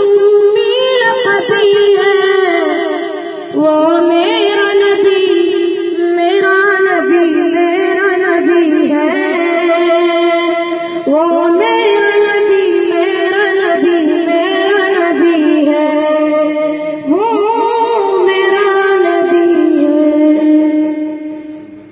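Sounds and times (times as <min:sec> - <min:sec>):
boys singing devotional song: 0:00.0 - 0:21.0.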